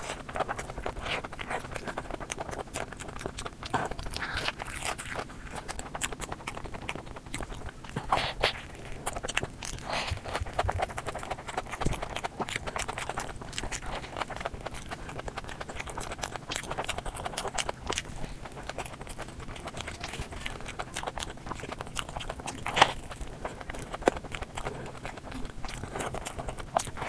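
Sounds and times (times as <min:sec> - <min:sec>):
chewing with wet mouth clicks: 0:00.0 - 0:27.0.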